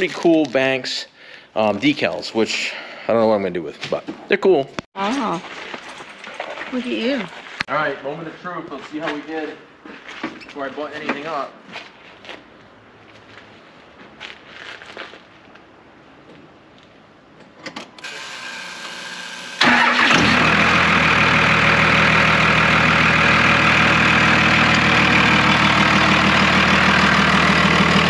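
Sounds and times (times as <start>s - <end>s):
starter clicks and whir: 17.6s - 28.0s
diesel engine idling: 19.6s - 28.0s.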